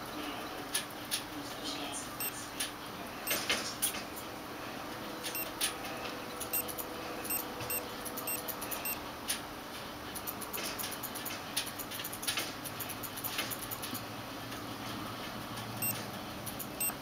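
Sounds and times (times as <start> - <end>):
faint steady hum: 0.0 - 9.2, 15.8 - 17.0
short electronic beeps: 6.5 - 6.7, 7.3 - 9.0, 16.7 - 17.0.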